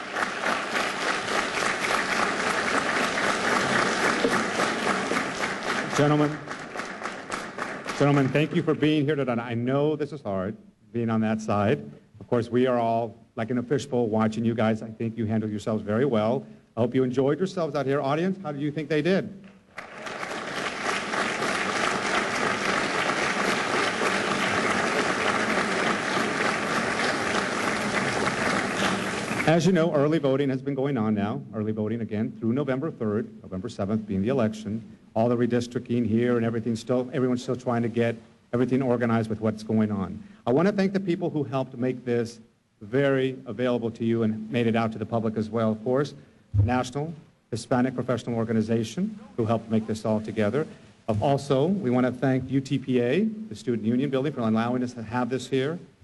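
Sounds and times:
audience applauding: 0.0 - 8.8, 19.5 - 29.7.

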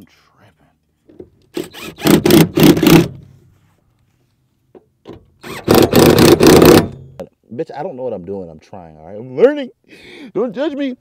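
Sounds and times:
cordless drill running: 1.6 - 3.1, 5.4 - 6.9.

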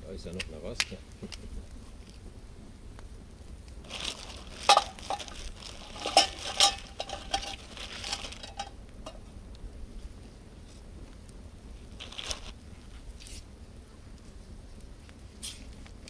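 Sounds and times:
metal cookware clinking and knocking: 6.0 - 9.2.

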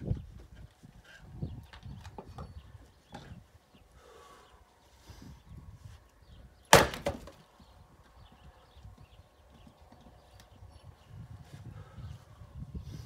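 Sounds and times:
axe splitting log: 6.7 - 7.4.

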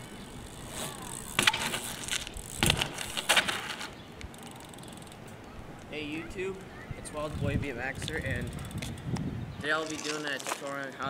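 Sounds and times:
bike scraping on asphalt: 0.0 - 5.2, 7.0 - 11.0.

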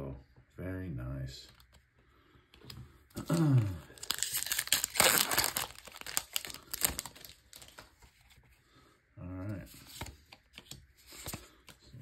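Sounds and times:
foil wrapper crinkling and tearing: 3.2 - 7.9.

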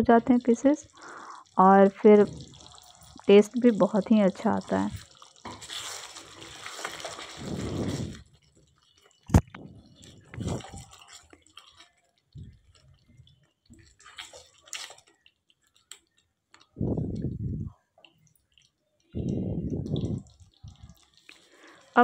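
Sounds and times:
spatula stirring thick curry: 0.8 - 16.7.

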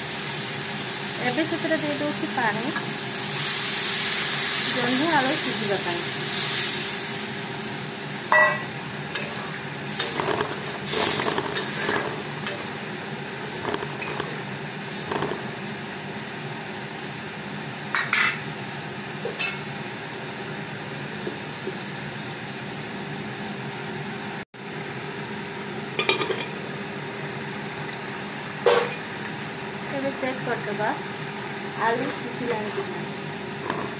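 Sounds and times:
pan hissing on stove: 0.0 - 16.7.

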